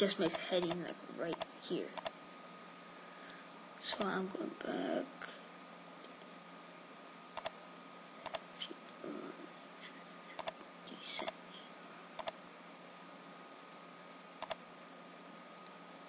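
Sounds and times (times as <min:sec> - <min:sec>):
mouse buttons clicking: 0:00.2 - 0:02.3, 0:03.9 - 0:04.2, 0:07.4 - 0:08.6, 0:10.4 - 0:11.5, 0:12.2 - 0:12.5, 0:14.4 - 0:14.8.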